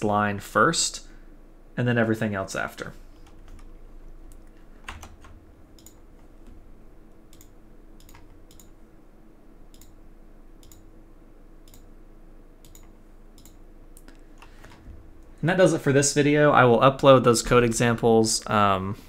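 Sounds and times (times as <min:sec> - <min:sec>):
faint electrical hum: 0:00.0 - 0:19.0
computer mouse clicks: 0:05.7 - 0:06.0, 0:07.3 - 0:08.7, 0:09.7 - 0:10.0, 0:10.6 - 0:10.8, 0:11.7 - 0:11.9, 0:12.6 - 0:14.8.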